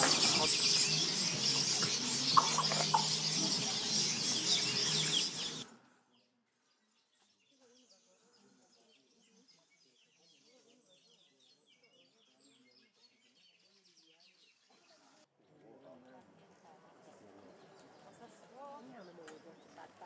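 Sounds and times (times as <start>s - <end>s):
birds chattering chorus: 0.0s - 5.7s
faint scattered chirps: 0.0s - 5.7s.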